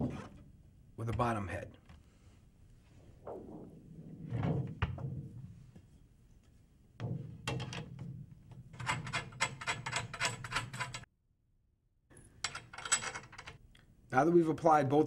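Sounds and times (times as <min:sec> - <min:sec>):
metallic clicks and rattles: 0:07.5 - 0:11.1, 0:12.4 - 0:13.6.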